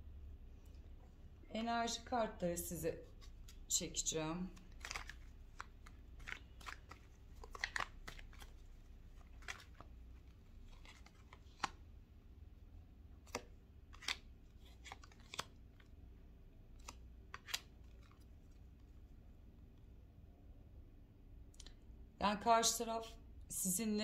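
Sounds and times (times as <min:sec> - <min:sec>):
cards snapping and flicking: 0:04.6 - 0:08.5, 0:10.7 - 0:11.8, 0:13.3 - 0:15.6, 0:16.8 - 0:18.2.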